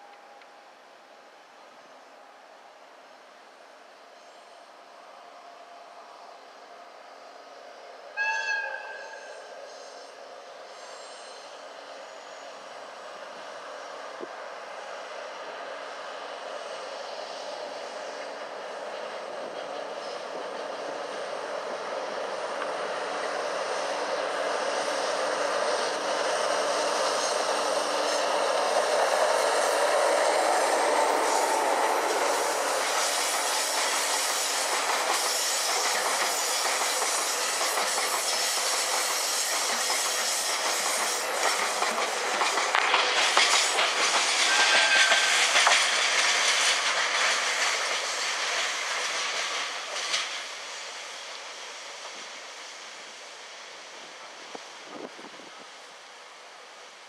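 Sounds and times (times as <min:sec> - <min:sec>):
diesel locomotive engine: 0:00.0 - 0:57.0
high wheel squeal: 0:08.2 - 0:12.6, 0:44.2 - 0:45.8
train wheels clattering over rail joints: 0:24.2 - 0:50.9.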